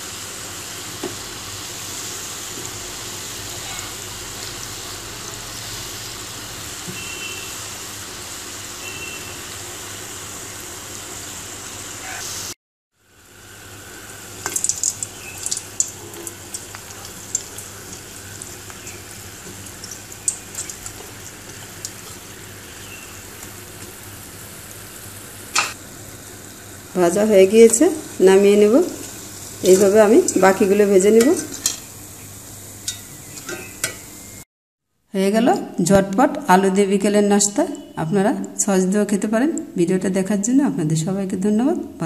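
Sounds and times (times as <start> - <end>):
oil sizzling while deep-frying: 0.0 - 34.5
crackling pops of frying: 14.0 - 24.8, 25.4 - 25.8, 28.8 - 34.1.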